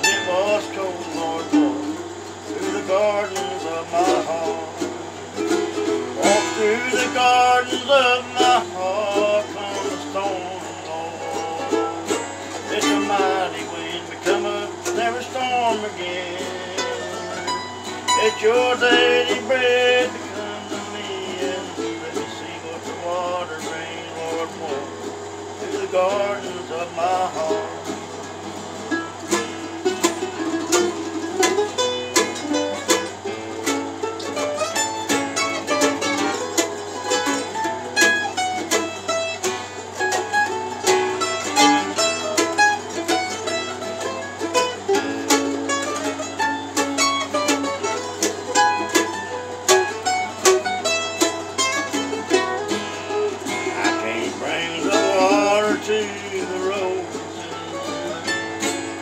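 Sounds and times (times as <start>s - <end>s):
acoustic guitars strumming: 0.0s - 59.0s
picked string instrument melody: 0.0s - 59.0s.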